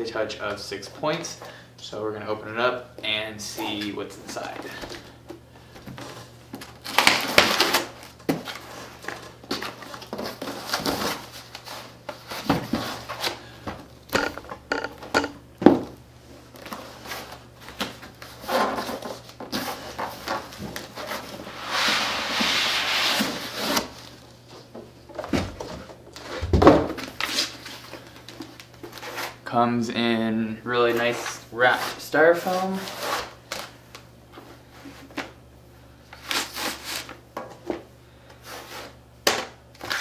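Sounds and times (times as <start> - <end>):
plastic wrap and cardboard rustling: 6.0 - 13.4
foam sheets sliding: 21.0 - 24.1.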